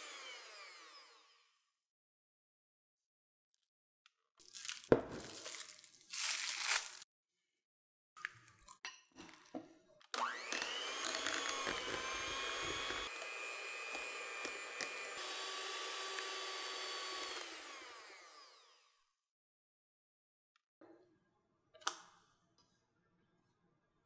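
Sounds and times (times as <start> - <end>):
electric hand mixer whining: 0.0 - 1.6, 10.2 - 19.0.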